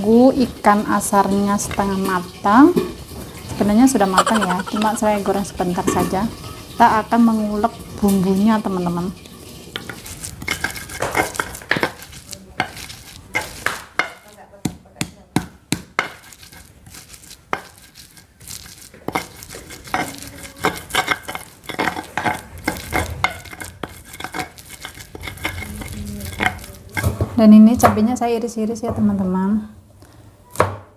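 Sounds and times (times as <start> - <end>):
stone pestle grinding in mortar: 4.2 - 5.0, 9.7 - 13.9, 15.8 - 27.3.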